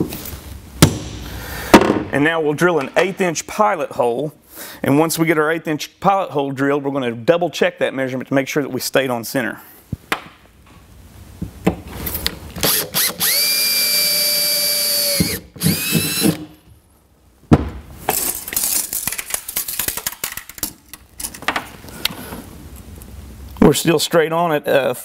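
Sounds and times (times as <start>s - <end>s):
cordless drill boring metal: 12.6s - 16.4s.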